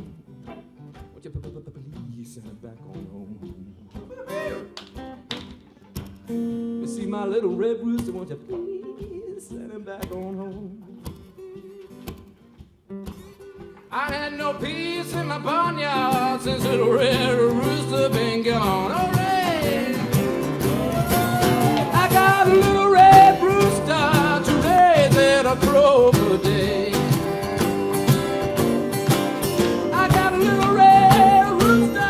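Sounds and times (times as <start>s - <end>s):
slapped cajon beats: 0.0s - 7.0s, 7.8s - 32.0s
acoustic blues band playing: 0.0s - 32.0s
strummed guitars: 0.0s - 32.0s
man singing: 1.2s - 4.7s, 6.8s - 11.7s, 13.8s - 27.9s, 29.6s - 32.0s.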